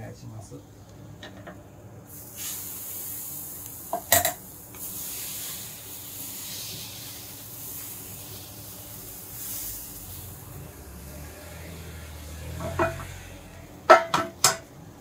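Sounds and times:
batter hissing on griddle: 2.0 - 13.6.

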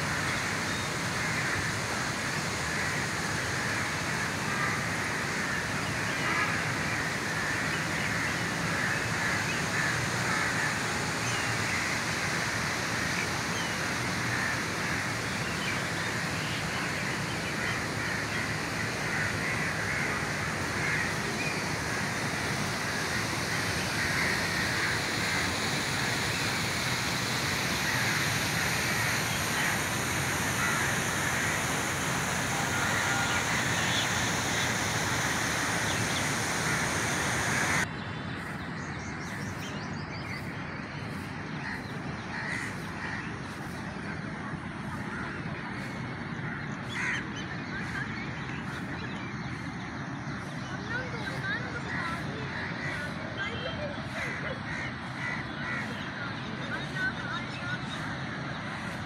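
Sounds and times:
steady background rush: 0.0 - 59.0
crows cawing: 3.6 - 4.8, 5.4 - 12.0, 14.2 - 15.7, 17.0 - 37.8, 41.6 - 43.8, 45.0 - 48.0, 51.9 - 53.2, 54.1 - 56.0.

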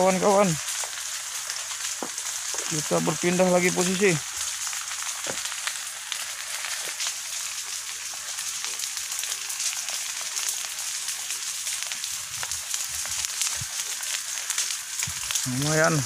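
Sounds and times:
vegetation fire hissing and crackling: 0.0 - 16.0.

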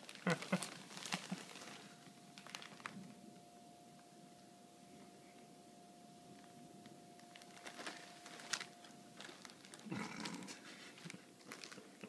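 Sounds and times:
paper and plastic bag rustling: 0.0 - 3.3, 6.3 - 12.0.

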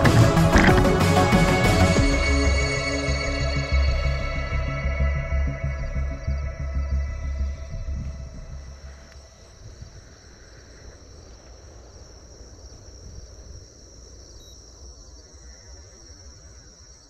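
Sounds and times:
low rumble: 0.0 - 10.1
crickets chirping: 0.0 - 17.0.

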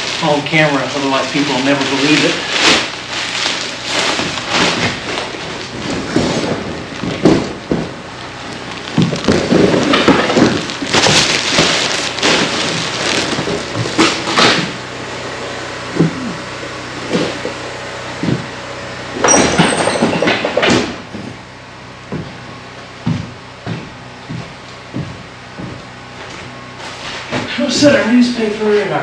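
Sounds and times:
junk clattering and knocking: 4.0 - 14.8, 19.2 - 26.5.

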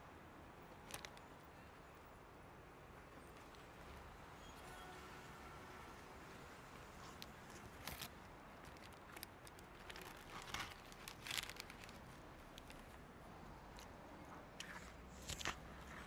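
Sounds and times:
paper wrapping rustling: 7.1 - 13.0
bread roll crunching: 7.5 - 13.0.

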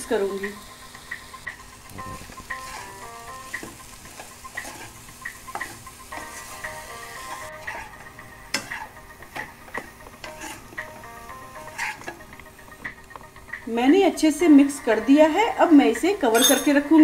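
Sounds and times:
potatoes sizzling: 0.0 - 17.0
spatula scraping a pan: 2.5 - 12.3.

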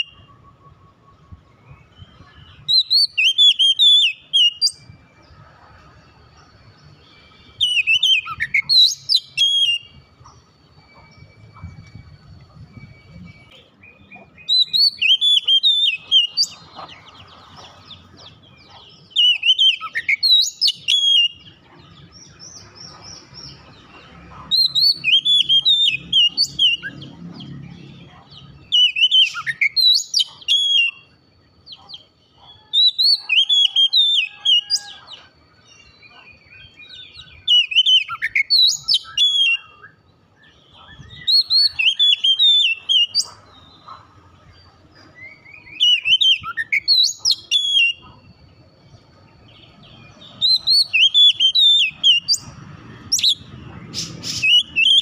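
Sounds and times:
bird singing whistled phrases: 0.0 - 4.9, 7.1 - 16.7, 18.7 - 21.6, 24.5 - 27.6, 28.6 - 31.2, 31.9 - 35.0, 36.1 - 44.0, 45.2 - 48.2, 50.1 - 52.4, 53.2 - 55.0.

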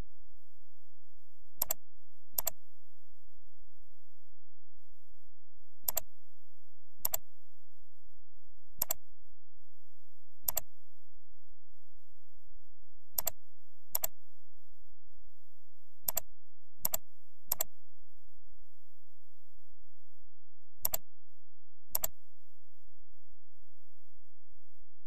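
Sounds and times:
computer mouse clicks: 1.6 - 1.8, 2.4 - 2.6, 5.8 - 6.1, 7.0 - 7.2, 8.8 - 9.0, 10.4 - 10.7, 13.2 - 14.2, 16.0 - 17.7, 20.8 - 21.0, 21.9 - 22.2.

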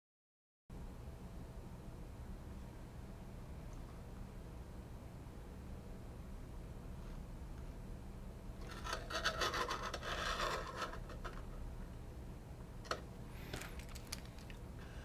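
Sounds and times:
circuit board scraping on a surface: 8.6 - 11.4.

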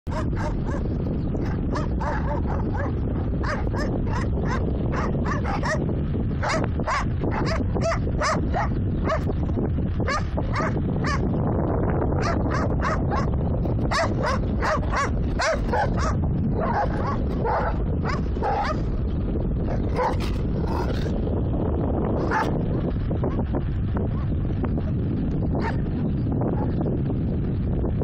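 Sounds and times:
vehicle low rumble: 0.0 - 28.0
dog yipping and barking: 0.1 - 5.8, 6.4 - 9.3, 10.1 - 11.2, 12.2 - 13.3, 13.9 - 18.9, 19.7 - 20.9, 22.3 - 22.5.

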